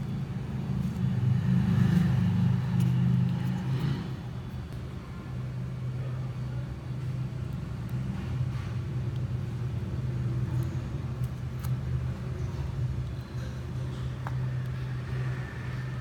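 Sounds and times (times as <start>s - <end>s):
low mechanical rumble and hum: 0.0s - 16.0s
knife scraping peeling skin: 11.1s - 12.0s.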